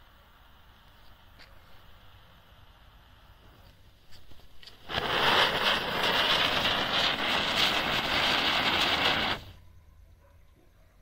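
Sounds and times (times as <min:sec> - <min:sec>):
spinner firework hissing: 0:00.0 - 0:09.6.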